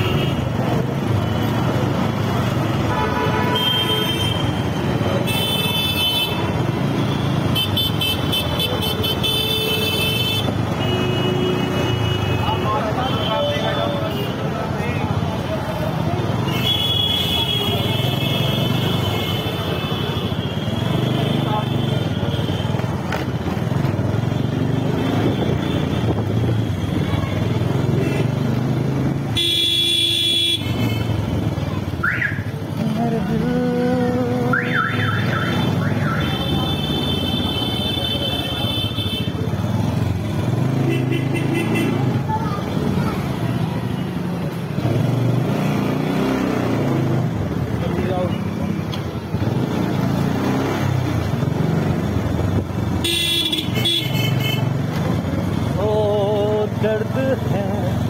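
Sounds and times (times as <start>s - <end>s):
motorcycle horn: 2.8s - 4.6s, 29.4s - 31.2s, 53.0s - 54.7s.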